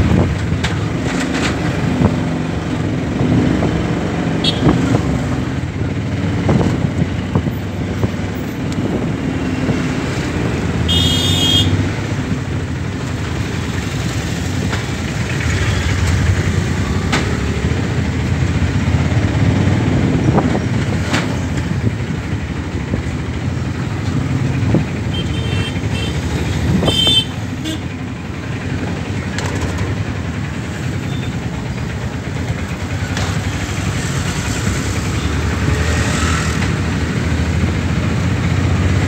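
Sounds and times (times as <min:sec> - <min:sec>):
auto-rickshaw engine running: 0:00.0 - 0:39.0
street traffic: 0:00.0 - 0:39.0
high-pitched vehicle horn: 0:10.9 - 0:11.8.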